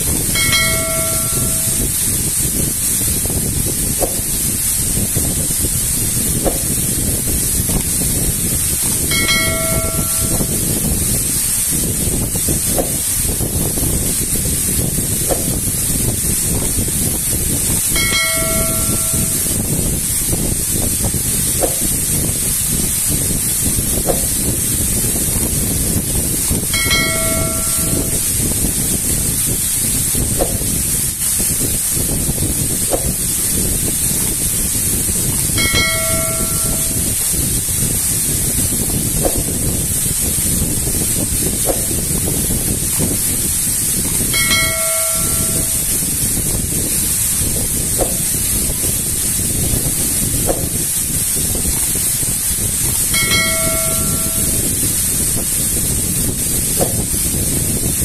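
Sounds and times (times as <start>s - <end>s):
waterfall splashing onto rocks: 0.0s - 58.0s
short chime: 0.4s - 1.9s, 9.1s - 10.7s, 18.0s - 19.6s, 26.8s - 28.3s, 35.6s - 37.2s, 44.4s - 46.0s, 53.1s - 54.7s.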